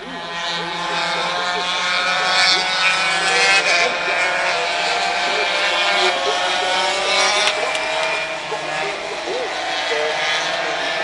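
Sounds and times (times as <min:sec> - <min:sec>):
motorcycles passing at high revs: 0:00.0 - 0:11.0.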